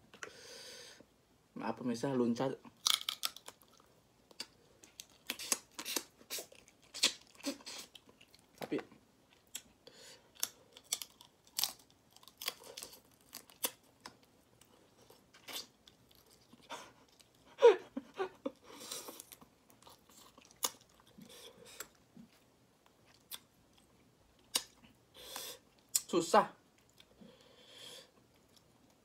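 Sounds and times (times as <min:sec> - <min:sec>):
crayfish shells cracking: 0:02.8 - 0:06.0, 0:10.3 - 0:14.2
chewing: 0:02.8 - 0:08.6, 0:18.5 - 0:25.0.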